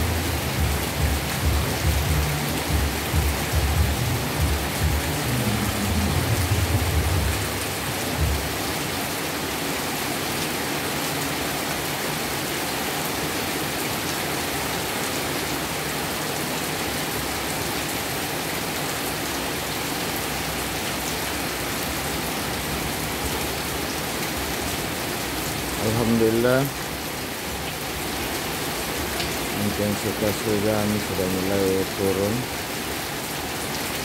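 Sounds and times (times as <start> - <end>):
heavy rain pouring: 0.0 - 34.0
low rumble: 0.6 - 8.4.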